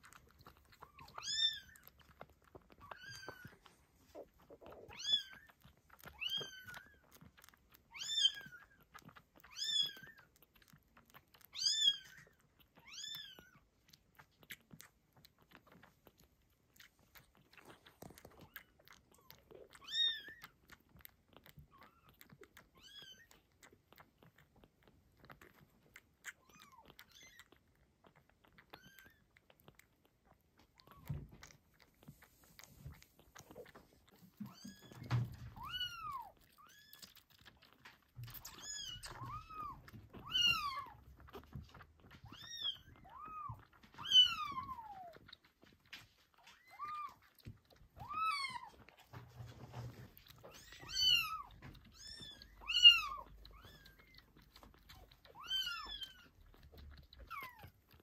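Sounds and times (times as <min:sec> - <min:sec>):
kittens suckling wet clicks: 0:00.0 - 0:58.0.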